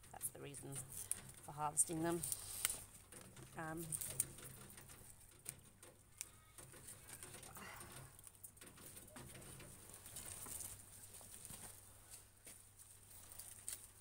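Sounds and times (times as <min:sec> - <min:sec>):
rustling of vines: 0:00.0 - 0:14.0
vines snapping: 0:13.2 - 0:14.0.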